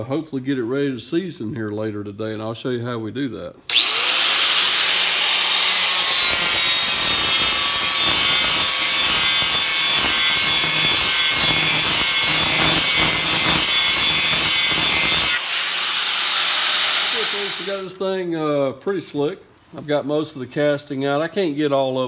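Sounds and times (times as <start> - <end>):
angle grinder grinding metal: 3.7 - 17.9.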